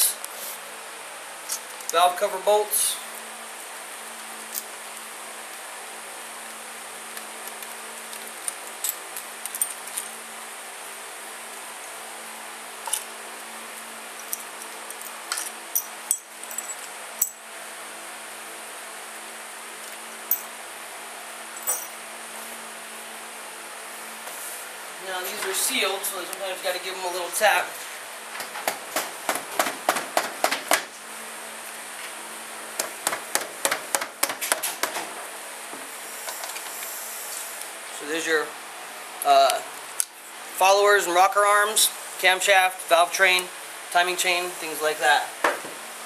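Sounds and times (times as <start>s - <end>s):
small metal clinks: 14.2s - 17.4s, 21.6s - 22.0s.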